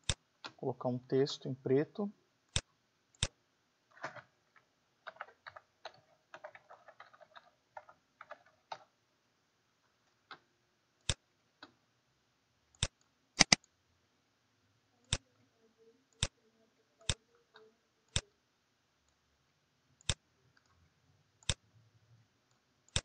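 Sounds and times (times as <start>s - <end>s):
mouse button clicking: 12.8s - 13.6s.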